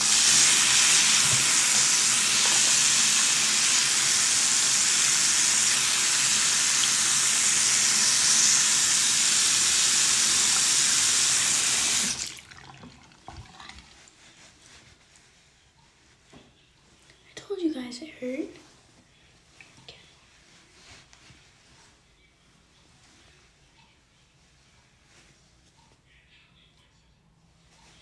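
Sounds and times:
tap water running: 0.0 - 14.1.

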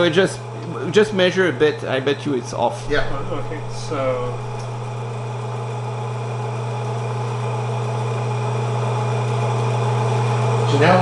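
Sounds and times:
electric motor humming: 2.7 - 6.2.

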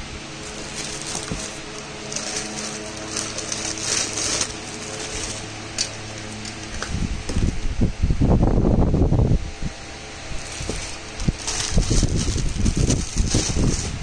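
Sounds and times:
steady low hum: 0.0 - 14.0
plastic wrapping crackling: 0.3 - 7.0, 10.3 - 14.0.

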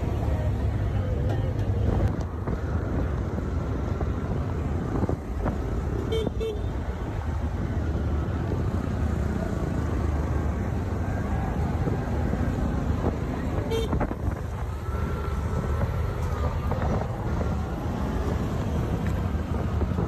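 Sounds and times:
traffic engine rumble: 0.0 - 20.0
vehicle horn toots: 6.1 - 6.7, 13.7 - 14.0.

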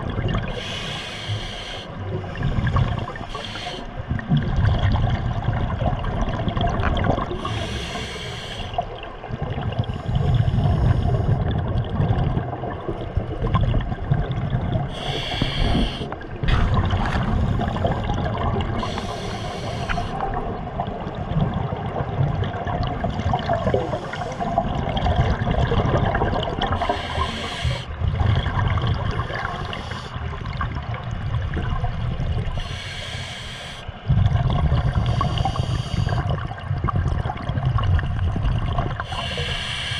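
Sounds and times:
bubbling exhaled air: 0.0 - 39.9
hissing inhale through regulator: 0.5 - 4.0, 7.3 - 8.9, 9.8 - 11.4, 14.9 - 20.3, 23.7 - 24.6, 26.7 - 28.0, 29.1 - 30.3, 32.5 - 34.0, 34.7 - 36.5, 39.0 - 39.9.

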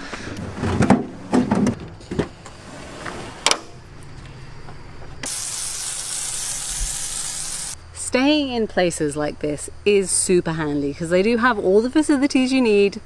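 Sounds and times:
garden hose spraying water: 5.2 - 7.8.

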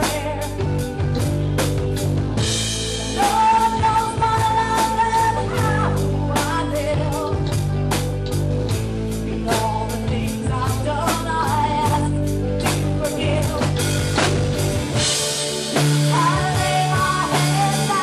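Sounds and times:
person singing lead vocal: 0.0 - 1.0, 3.1 - 8.0, 9.3 - 14.3, 15.6 - 18.0
drum kit steady beat: 0.0 - 18.0
guitar: 0.0 - 18.0.

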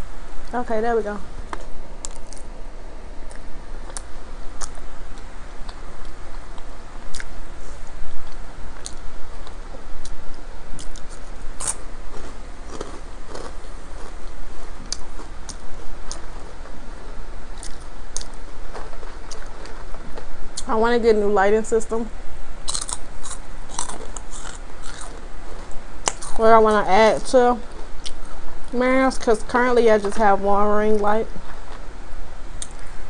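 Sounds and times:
chewing food: 3.2 - 7.4, 10.8 - 16.8, 17.6 - 20.7, 22.6 - 26.4, 27.6 - 28.4
mouth clicks and smacks: 7.1 - 7.4.

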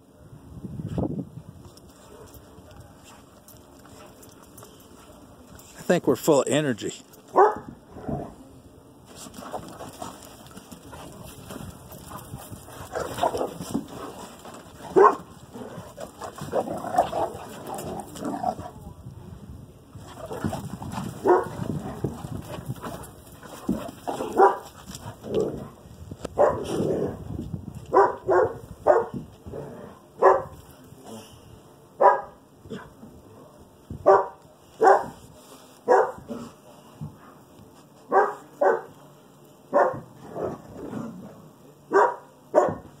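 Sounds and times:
dog barking: 7.3 - 7.7, 14.9 - 15.2, 21.2 - 21.5, 24.3 - 24.6, 26.4 - 26.7, 27.9 - 29.2, 30.2 - 30.5, 32.0 - 32.4, 34.0 - 35.2, 35.9 - 36.2, 38.1 - 38.9, 39.7 - 40.1, 41.9 - 42.9.

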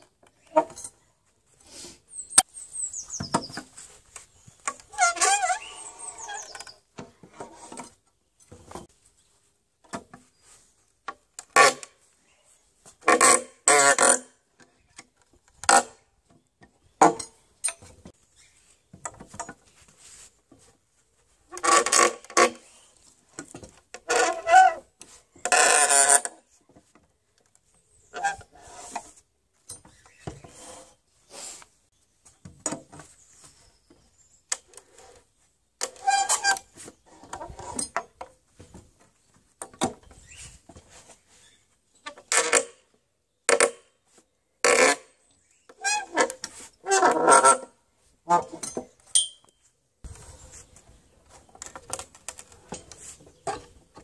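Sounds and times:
nails squealing out of wood: 4.7 - 6.9.

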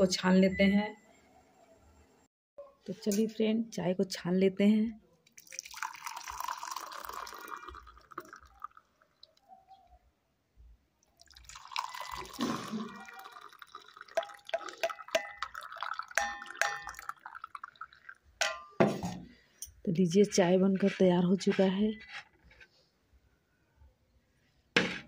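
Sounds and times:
tea pouring and splashing: 5.3 - 9.4, 11.0 - 18.6.

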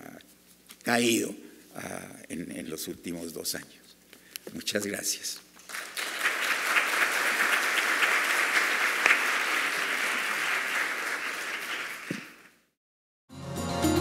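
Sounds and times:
audience applauding: 5.6 - 12.7.

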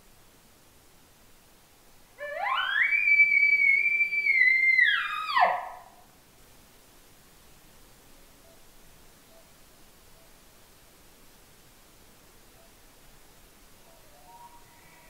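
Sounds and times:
elk bugling: 2.2 - 5.9.

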